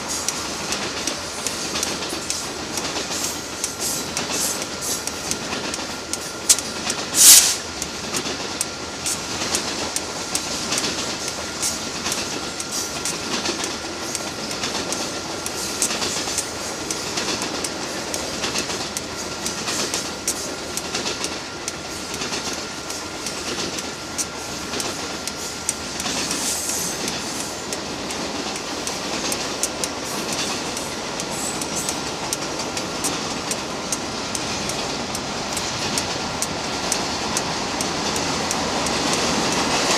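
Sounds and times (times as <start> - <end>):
freight train rolling past: 0.0 - 39.9
wheels clicking over rail joints: 0.0 - 39.9
loud sharp noise: 6.5 - 7.7.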